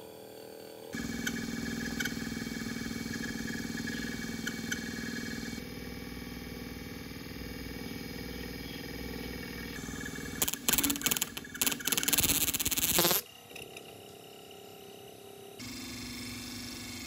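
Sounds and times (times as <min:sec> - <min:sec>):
motor spinning metal disc: 0:09.0 - 0:13.2.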